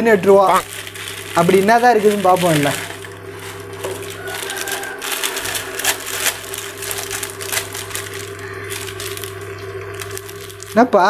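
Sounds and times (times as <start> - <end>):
cooktop hum: 0.0 - 11.0
plastic packet crinkling: 0.0 - 11.0.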